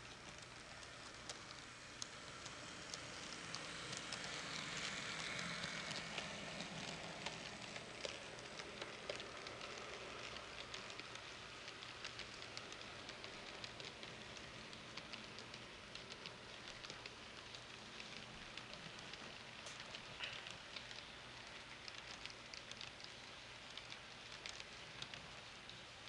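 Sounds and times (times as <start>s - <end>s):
wheels clicking on rails: 0.0s - 26.0s
model train rolling hiss: 1.5s - 8.6s.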